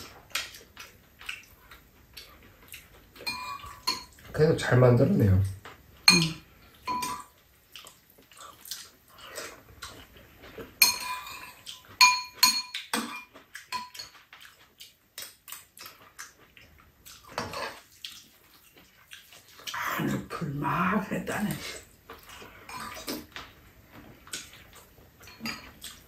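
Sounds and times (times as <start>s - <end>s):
spoons and chopsticks clinking on bowls: 3.2s - 4.4s, 6.1s - 7.3s, 10.8s - 14.3s, 25.2s - 26.0s.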